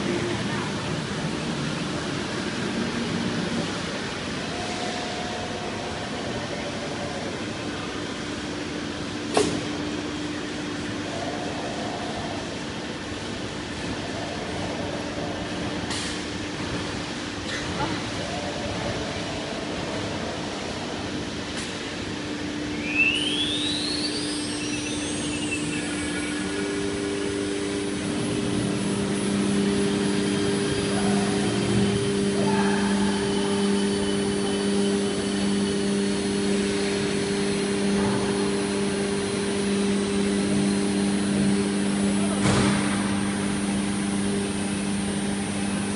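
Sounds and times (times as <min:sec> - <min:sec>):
machine hum: 0:00.0 - 0:45.9
router spindle whine: 0:22.8 - 0:45.9.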